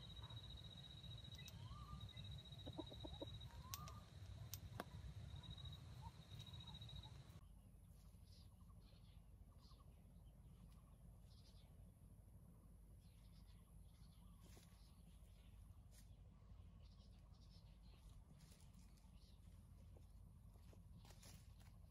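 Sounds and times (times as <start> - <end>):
rooster calling softly: 0.0 - 7.4
steady high whine: 0.0 - 7.4.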